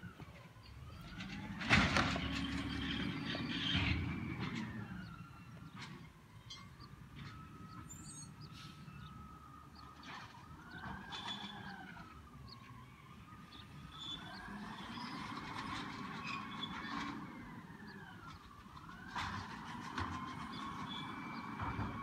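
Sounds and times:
faint siren wailing: 0.0s - 22.0s
low engine rumble: 0.0s - 22.0s.

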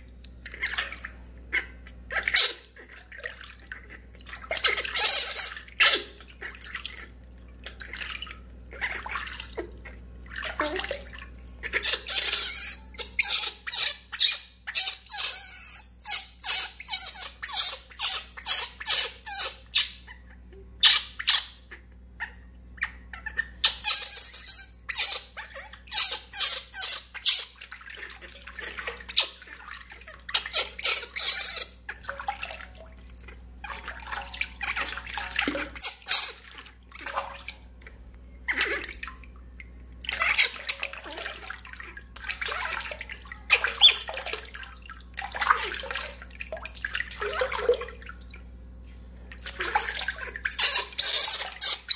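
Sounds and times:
water splashing in steel basin: 0.0s - 20.0s, 23.6s - 51.9s.

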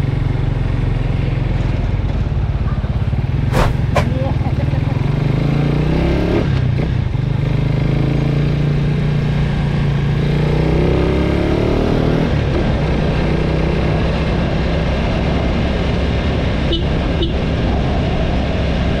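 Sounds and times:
motorcycle engine running: 0.0s - 11.3s.

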